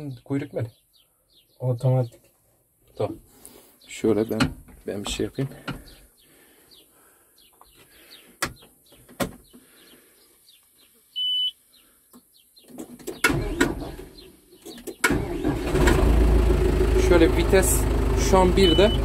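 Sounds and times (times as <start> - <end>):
birds chirping: 0.0 - 15.1, 16.9 - 19.0
tractor diesel engine starting: 13.2 - 14.2, 15.0 - 19.0.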